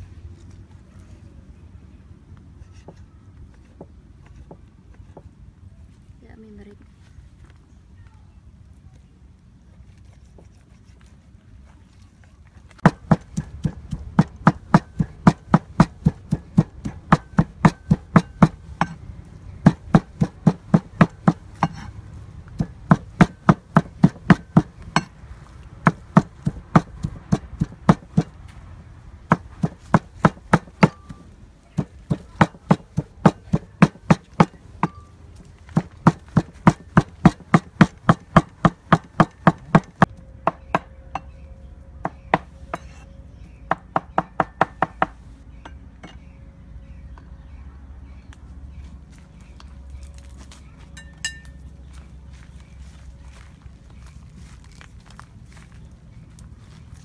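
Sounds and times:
cleaver chopping on wooden block: 0:12.8 - 0:19.0, 0:19.6 - 0:21.9, 0:22.6 - 0:25.1, 0:25.8 - 0:28.4, 0:29.3 - 0:31.2, 0:31.8 - 0:35.0, 0:35.7 - 0:40.9, 0:43.7 - 0:45.2.

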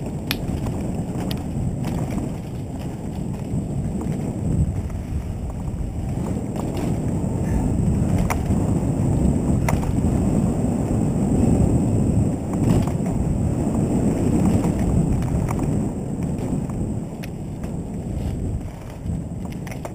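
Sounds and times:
stones and bike rattling: 0:00.0 - 0:19.9
wind buffeting microphone: 0:00.0 - 0:19.9.

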